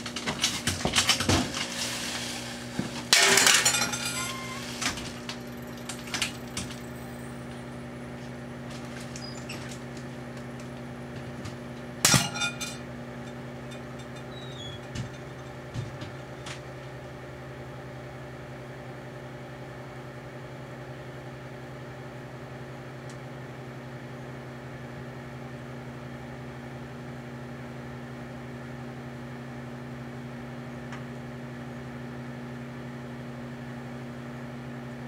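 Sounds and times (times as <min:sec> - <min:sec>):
light bulbs arcing and popping: 0:00.0 - 0:03.3, 0:04.1 - 0:17.0
microwave oven humming: 0:00.0 - 0:35.0
glass crackling: 0:00.1 - 0:07.0.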